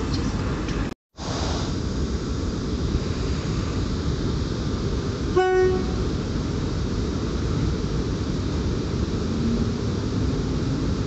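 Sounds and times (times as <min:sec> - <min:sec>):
train rolling: 0:00.0 - 0:11.0
locomotive horn blast: 0:05.3 - 0:06.1.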